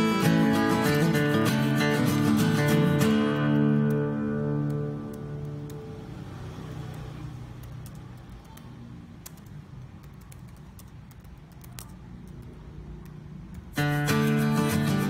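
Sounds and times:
keyboard typing clicks: 0:06.9 - 0:13.8.

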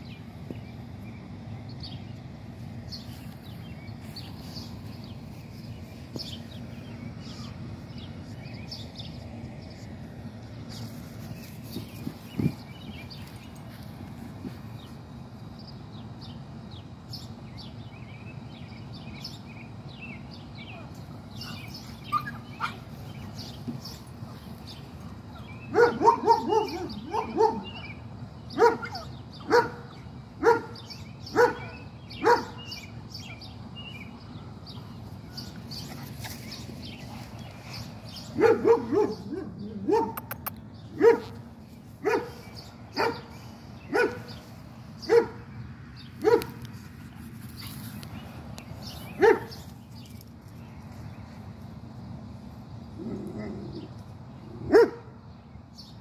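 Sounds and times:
dog barking: 0:25.7 - 0:27.8, 0:28.6 - 0:29.8, 0:30.4 - 0:32.6, 0:38.4 - 0:40.4, 0:41.0 - 0:41.4, 0:42.0 - 0:42.4, 0:43.0 - 0:43.3, 0:43.9 - 0:44.3, 0:45.1 - 0:45.4, 0:46.2 - 0:46.6, 0:49.2 - 0:49.6, 0:54.7 - 0:55.1.

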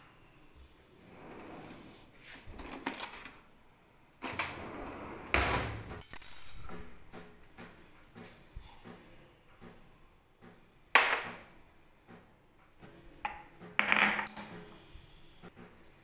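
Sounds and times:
kitchenware knocking and clattering: 0:11.0 - 0:11.5, 0:13.3 - 0:14.8.

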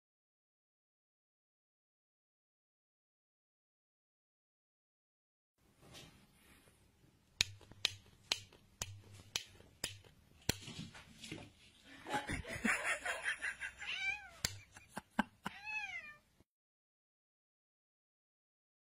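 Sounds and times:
cat meowing: 0:13.8 - 0:14.5, 0:15.5 - 0:16.3.

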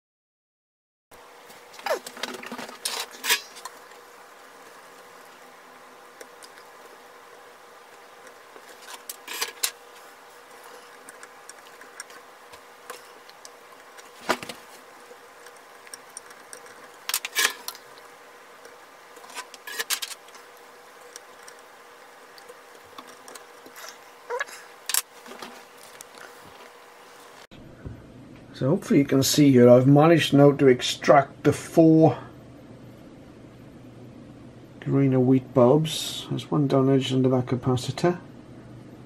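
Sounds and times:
faint steady hum: 0:01.2 - 0:39.0.

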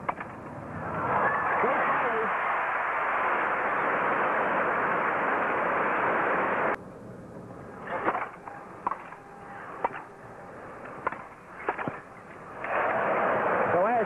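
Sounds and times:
crowd applause: 0:00.8 - 0:06.7.

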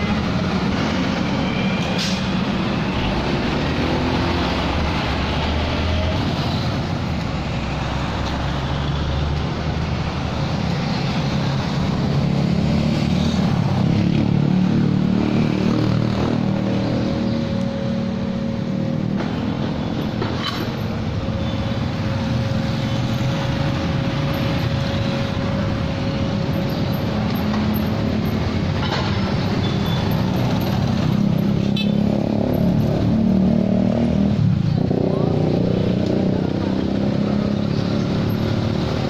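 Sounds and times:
cars and motorcycles passing: 0:00.0 - 0:39.0.

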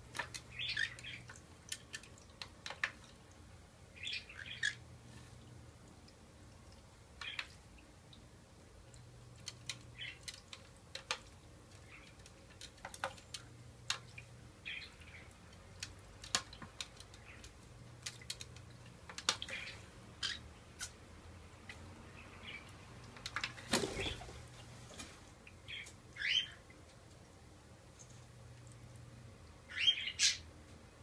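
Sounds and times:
water dripping and splashing: 0:00.1 - 0:03.6, 0:04.6 - 0:19.7.

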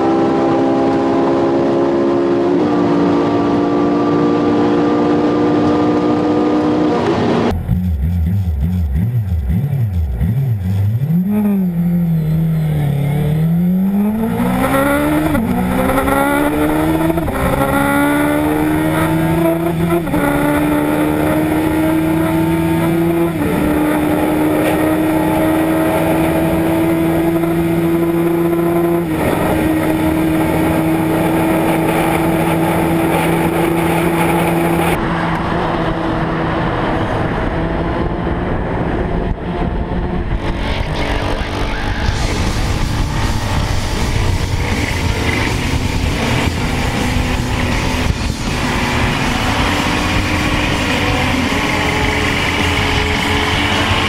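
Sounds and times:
motorcycle engine at full throttle: 0:00.0 - 0:54.0
noisier motorcycle: 0:00.0 - 0:54.0
wind rush: 0:29.0 - 0:54.0.

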